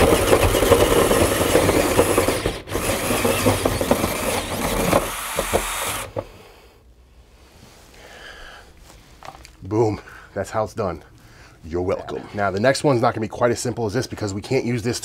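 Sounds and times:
drill hole saw grinding drywall: 0.0s - 6.4s.

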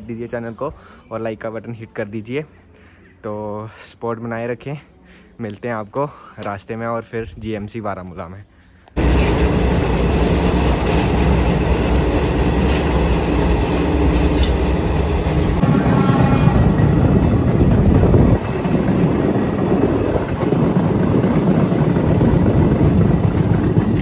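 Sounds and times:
train rumbling: 9.0s - 24.0s.

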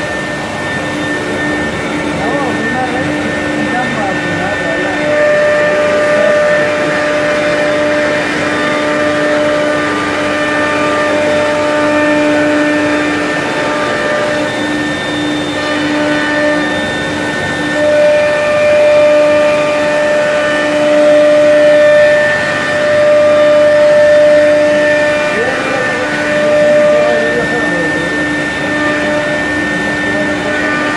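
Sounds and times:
router mechanical whine: 0.0s - 30.9s.

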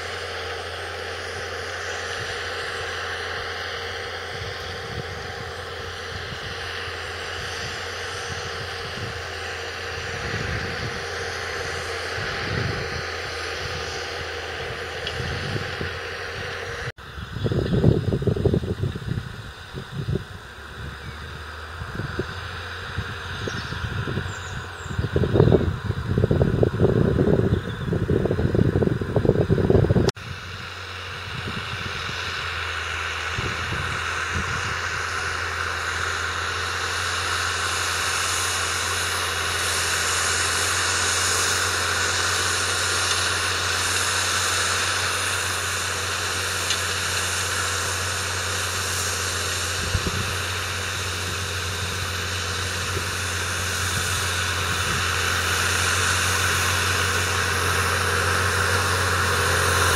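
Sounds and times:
diesel engine droning: 0.0s - 59.9s
rough engine rumble: 0.0s - 59.9s
broad hiss: 30.3s - 59.9s.

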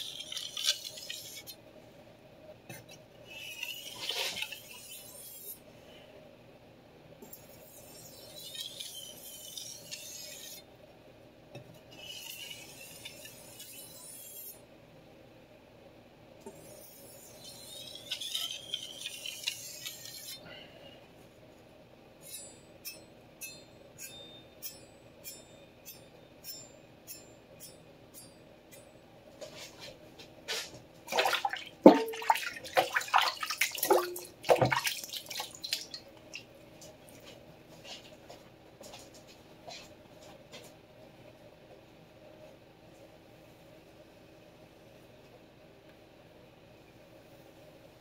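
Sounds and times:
knife scraping on whetstone: 3.3s - 5.6s, 16.5s - 20.4s.

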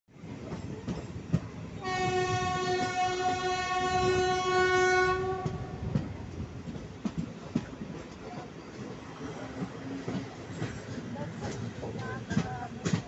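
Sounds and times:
train horn blast: 1.8s - 5.8s
train wheels clattering: 5.3s - 13.0s.

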